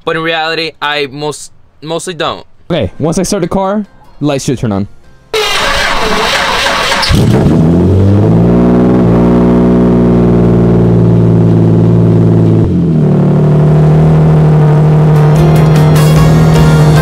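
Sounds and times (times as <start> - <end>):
car engine starting and idling: 5.3 - 17.0.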